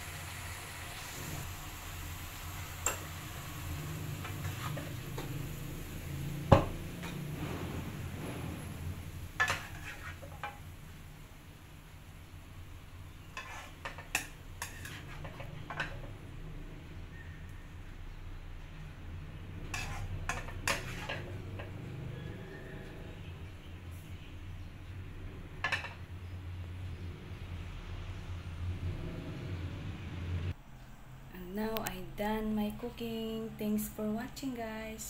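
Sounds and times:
light sizzle in wok: 0.0 - 28.7
metal spatula stirring in wok: 3.8 - 5.9, 6.7 - 10.6, 13.2 - 16.2, 19.6 - 21.8.

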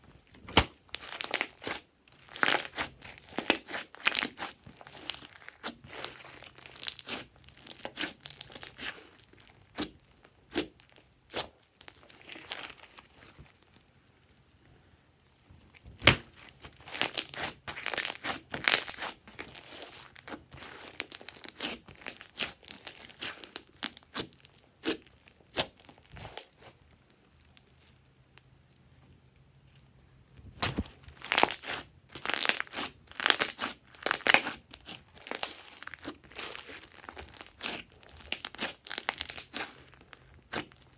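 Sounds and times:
slime clicking and popping: 30.6 - 39.8.

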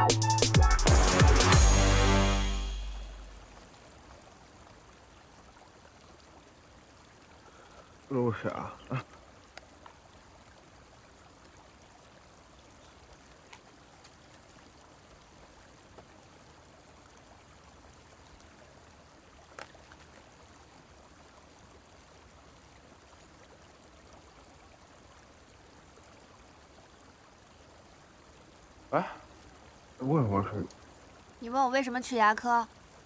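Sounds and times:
faint background hiss: 2.6 - 33.0.

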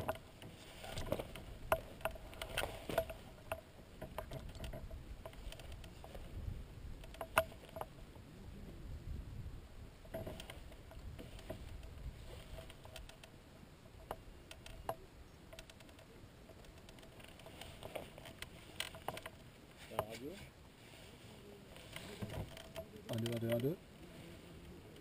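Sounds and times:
faint clicks and ticks: 0.0 - 8.0, 10.0 - 20.5, 21.7 - 24.0
wind buffeting microphone: 0.9 - 7.2, 7.9 - 12.9.

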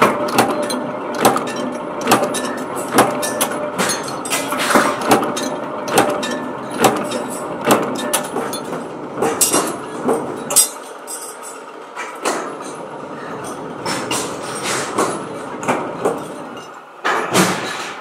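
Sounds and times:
power press metallic impacts: 0.0 - 10.9
workshop din: 0.0 - 18.0.

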